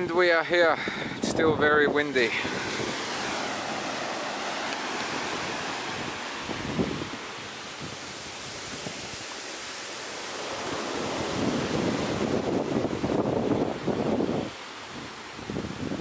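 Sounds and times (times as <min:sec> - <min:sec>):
wind buffeting microphone: 0:00.0 - 0:09.4, 0:10.5 - 0:16.0
ocean surf: 0:00.0 - 0:16.0.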